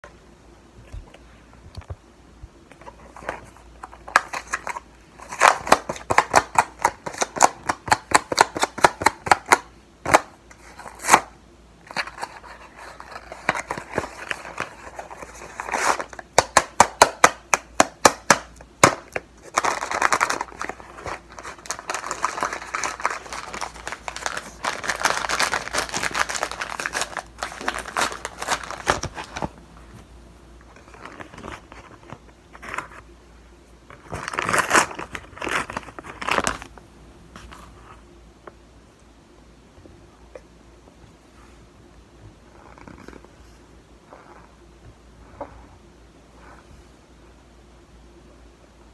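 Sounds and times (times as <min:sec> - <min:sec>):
paper crinkling: 0:19.0 - 0:30.1, 0:30.7 - 0:33.0, 0:33.9 - 0:37.8.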